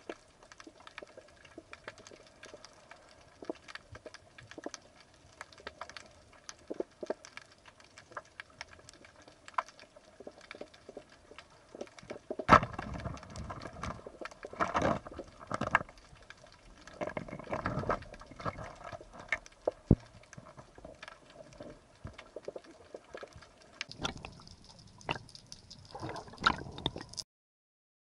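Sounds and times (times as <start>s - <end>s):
underwater knocks and clicks: 0.0s - 27.2s
bursts of water noise: 16.8s - 27.2s.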